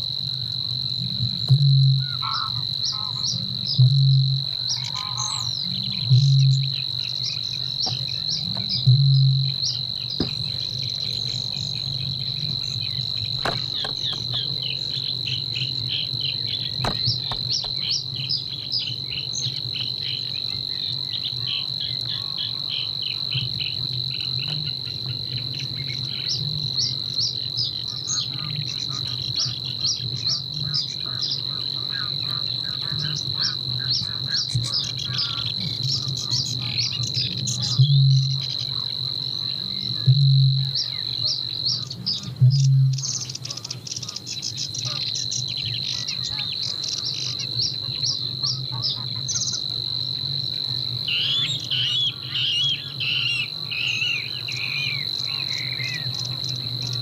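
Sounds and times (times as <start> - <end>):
low croaking: 1.0 - 18.2
chattering bird notes: 9.5 - 18.0.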